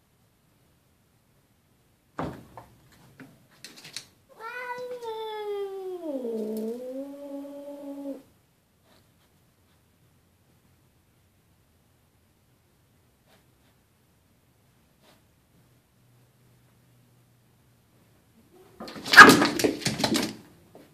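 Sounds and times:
cat yowling: 0:04.3 - 0:08.3.

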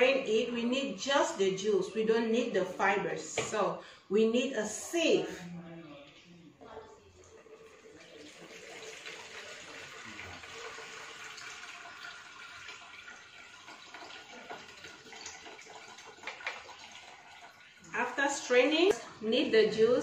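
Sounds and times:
liquid trickling through sieve: 0:07.1 - 0:18.0.

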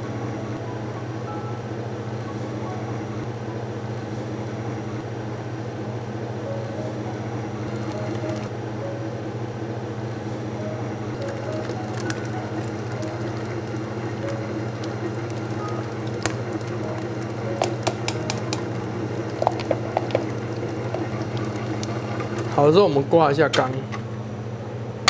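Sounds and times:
stand mixer motor hum: 0:07.4 - 0:08.5, 0:10.9 - 0:22.9.

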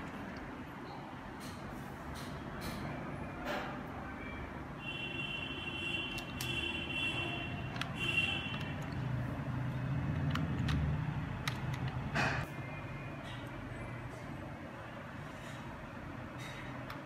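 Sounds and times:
keyboard keystroke clicks: 0:10.1 - 0:12.0.

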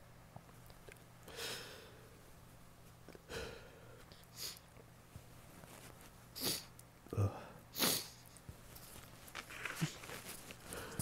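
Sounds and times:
faint low hum: 0:00.0 - 0:11.0
person sniffing and exhaling: 0:03.3 - 0:04.7, 0:06.4 - 0:06.7, 0:07.7 - 0:08.4, 0:09.5 - 0:11.0.

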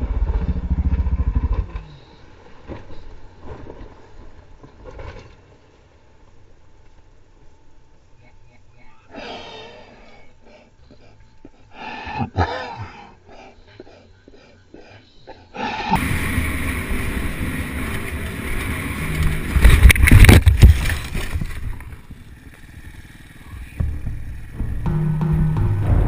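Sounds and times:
dirt bike engine: 0:00.0 - 0:03.3, 0:15.9 - 0:26.0
bike crashing in dirt: 0:16.0 - 0:23.2.

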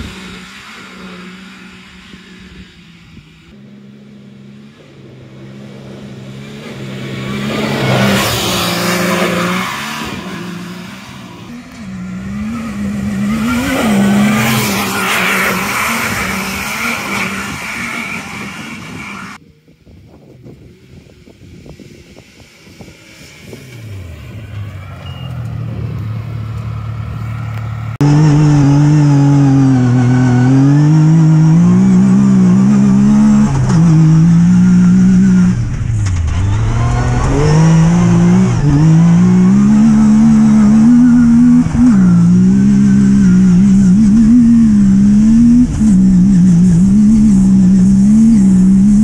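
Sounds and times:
engine revving at speed: 0:00.0 - 0:19.4, 0:22.1 - 0:49.0.

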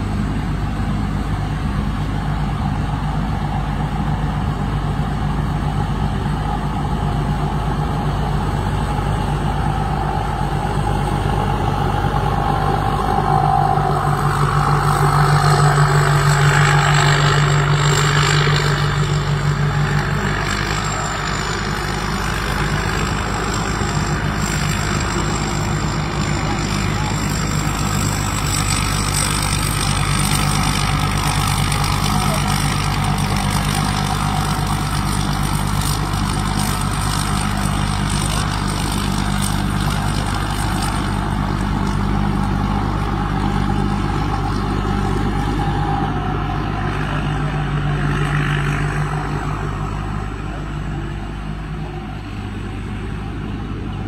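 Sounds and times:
combine harvester engine and threshing: 0:00.0 - 0:54.0.

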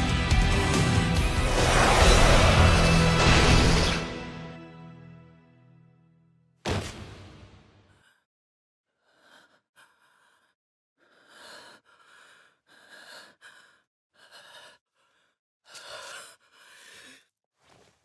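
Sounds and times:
person breathing heavily: 0:08.9 - 0:17.4.

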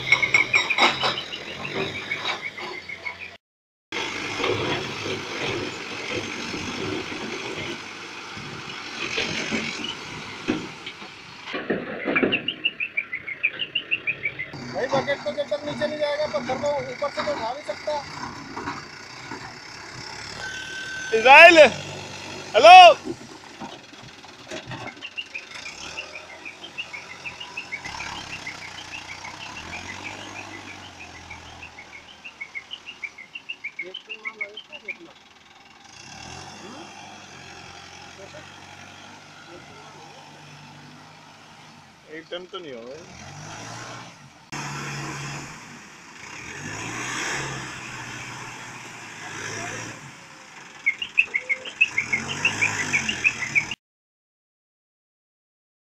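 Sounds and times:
backhoe engine under load: 0:00.0 - 0:53.8
high chirps: 0:25.0 - 0:35.1, 0:50.8 - 0:53.8.

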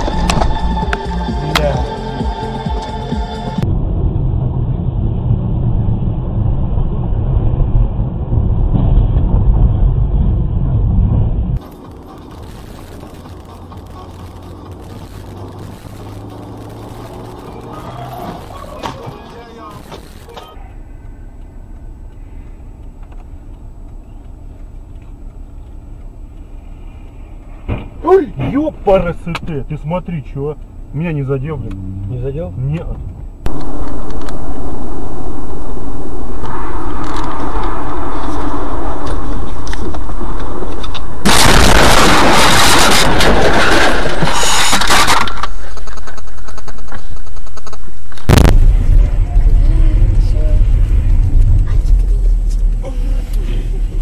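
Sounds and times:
car cabin low rumble: 0:03.6 - 0:41.4, 0:45.5 - 0:54.0
car crash impact: 0:33.5 - 0:52.8.

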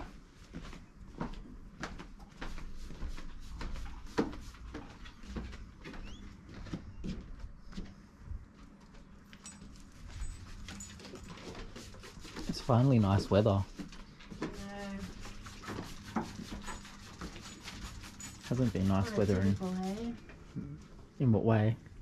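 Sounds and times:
footsteps on wooden deck: 0:00.0 - 0:11.8.

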